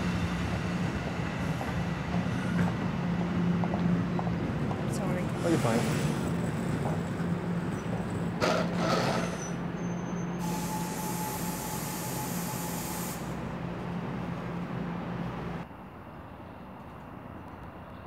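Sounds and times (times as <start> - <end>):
train electric hum: 0.0 - 18.0
air brakes hissing: 8.5 - 13.5.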